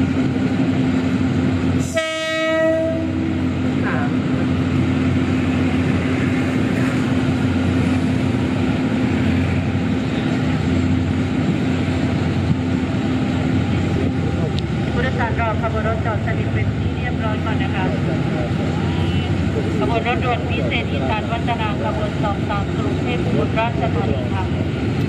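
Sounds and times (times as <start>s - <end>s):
diesel locomotive engine droning: 0.0s - 25.0s
train horn: 1.8s - 3.4s.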